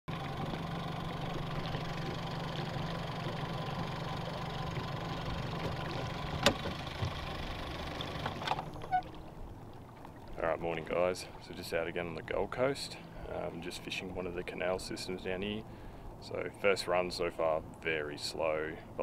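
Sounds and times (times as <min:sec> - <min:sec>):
boat motor idling: 0:00.1 - 0:14.3.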